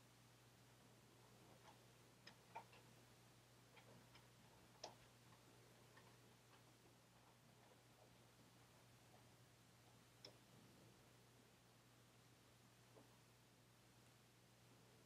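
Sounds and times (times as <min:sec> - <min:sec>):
low steady hum: 0:00.0 - 0:15.0
faint small ticks: 0:01.3 - 0:10.8.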